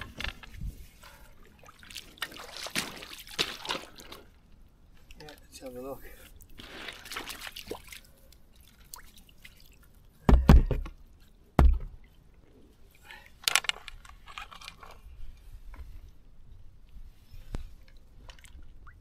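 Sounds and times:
water splashing and dripping: 0:01.1 - 0:04.4, 0:06.4 - 0:10.1.

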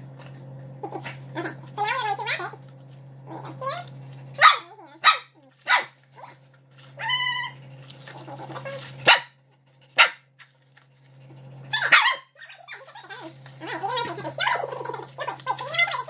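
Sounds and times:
dog barking: 0:04.4 - 0:06.4, 0:09.0 - 0:09.4, 0:10.0 - 0:10.3, 0:11.7 - 0:12.6.

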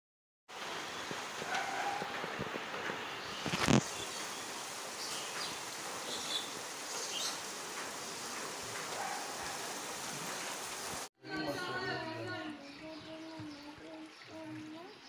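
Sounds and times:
steady outdoor hiss: 0:00.5 - 0:15.0.

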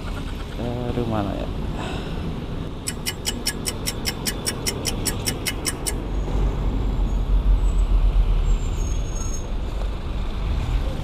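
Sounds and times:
road traffic rumbling: 0:00.0 - 0:11.0
rapid even ticking: 0:02.8 - 0:06.0.

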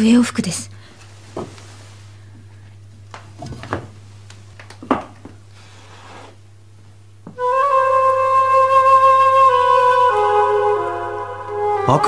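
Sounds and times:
flute melody from record: 0:07.4 - 0:12.0.

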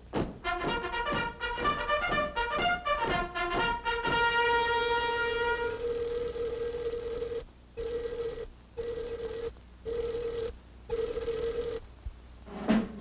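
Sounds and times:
telephone bell ringing: 0:05.1 - 0:11.8.

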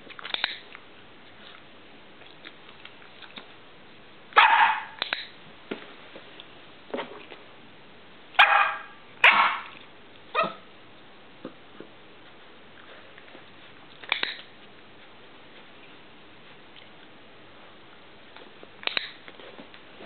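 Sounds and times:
dog barking: 0:04.4 - 0:05.0, 0:08.4 - 0:10.7.

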